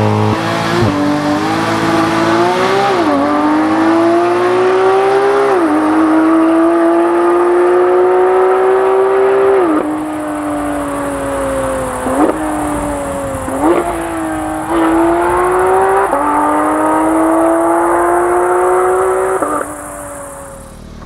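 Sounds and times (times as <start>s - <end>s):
car engine at high revs: 0.0s - 21.0s.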